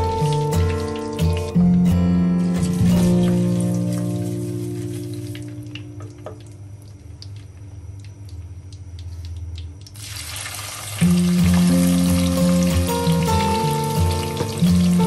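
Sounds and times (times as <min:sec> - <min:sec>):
background music: 0:00.0 - 0:05.7, 0:11.0 - 0:15.0
onion sizzling in oil: 0:02.4 - 0:06.0, 0:10.0 - 0:15.0
seeds popping in hot oil: 0:02.5 - 0:15.0.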